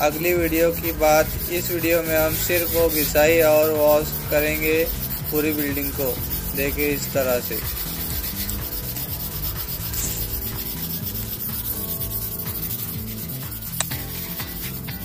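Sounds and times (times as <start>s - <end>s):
wire brush scrubbing wall: 0.0s - 15.0s.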